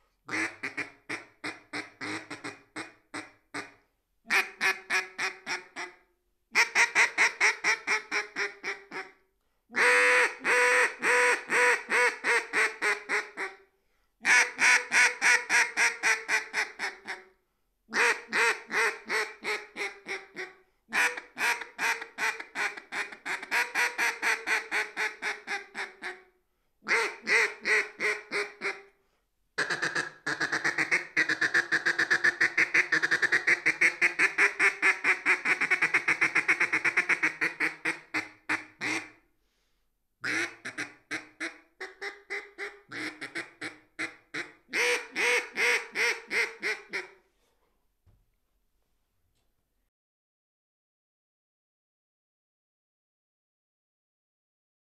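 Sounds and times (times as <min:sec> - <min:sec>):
duck call quacking: 0:00.3 - 0:06.0, 0:06.6 - 0:13.6, 0:14.2 - 0:17.3, 0:17.9 - 0:26.2, 0:26.9 - 0:28.9, 0:29.6 - 0:39.2, 0:40.2 - 0:47.2.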